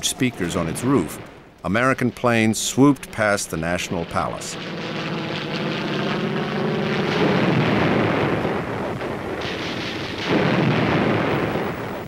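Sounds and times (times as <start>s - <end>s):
rough rushing noise: 0.0s - 10.8s
propeller plane engine drone: 2.8s - 8.9s.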